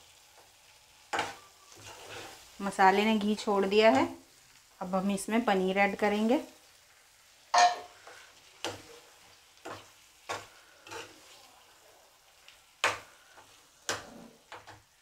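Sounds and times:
faint sizzle of frying: 0.0s - 15.0s
spoon scraping metal pan: 1.1s - 2.4s, 7.6s - 11.4s.

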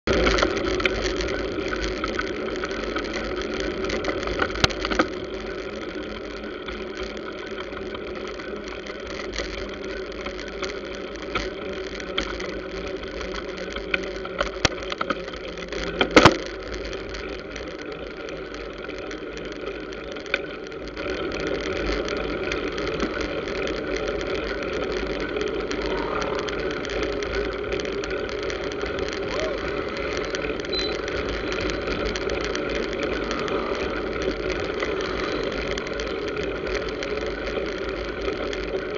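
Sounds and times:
scooter and motorcycle traffic: 21.3s - 38.9s.

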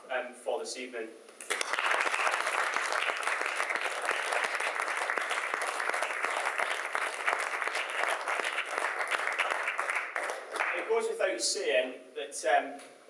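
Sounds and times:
crowd applauding: 1.4s - 10.9s.

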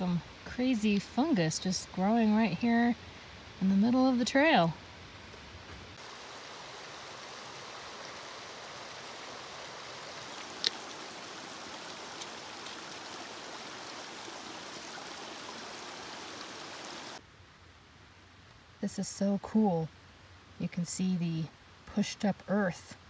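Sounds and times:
creek water rushing over rocks: 5.9s - 17.2s.

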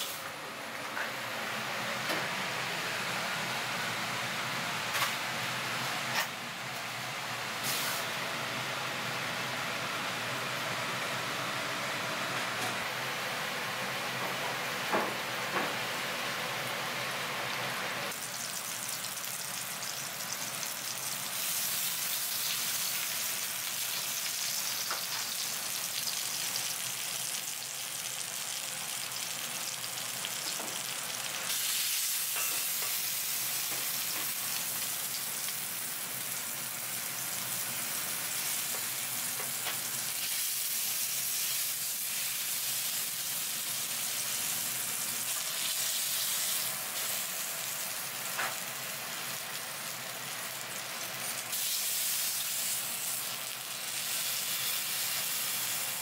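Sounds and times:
oil sizzling in a pan: 7.5s - 8.2s, 16.7s - 56.0s.

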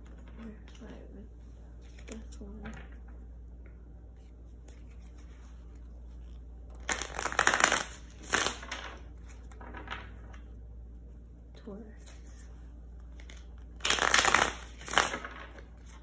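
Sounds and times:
cards being shuffled: 4.1s - 10.5s, 12.0s - 16.0s.

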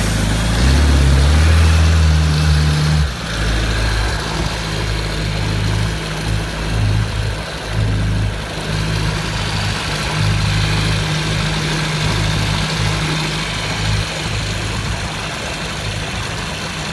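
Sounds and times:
jet ski engine running: 0.0s - 16.9s.

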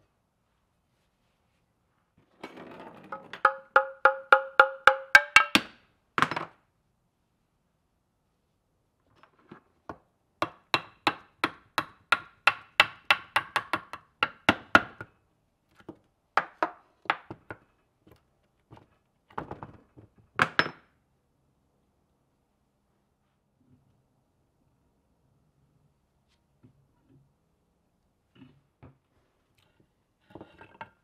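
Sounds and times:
mallet tapping metal shaft: 3.4s - 5.7s.

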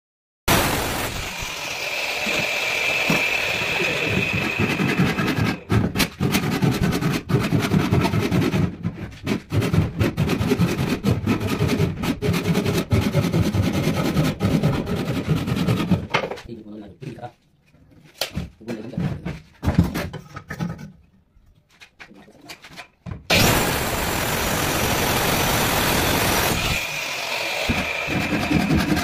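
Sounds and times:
hand saw cutting wood: 0.5s - 16.5s, 22.6s - 29.0s.

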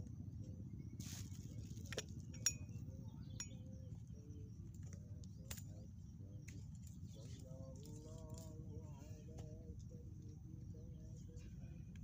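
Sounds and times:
steady low rumble: 0.0s - 12.0s
glass and plastic bottle clinking: 1.9s - 2.8s.

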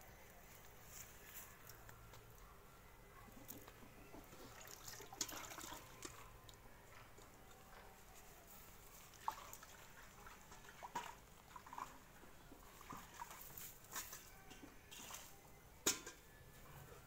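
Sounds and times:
milk squirting into a pail: 4.2s - 6.6s, 9.0s - 12.0s.

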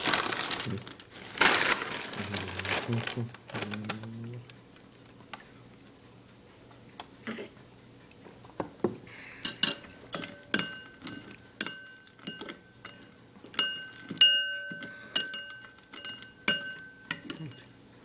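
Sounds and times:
spoon clinking against a bowl: 9.4s - 17.7s.

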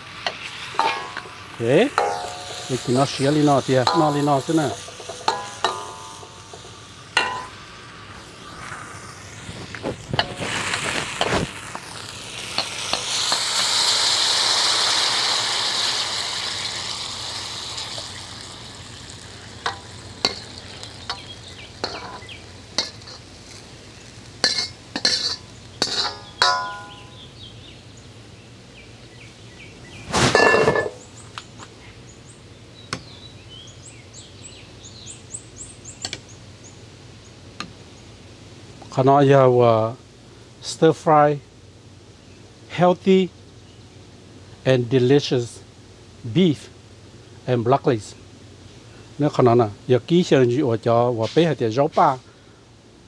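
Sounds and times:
food sizzling in a pan: 0.0s - 27.4s
utensil clinking against pan: 2.0s - 3.2s, 3.8s - 7.6s, 21.1s - 22.2s, 24.4s - 27.1s.

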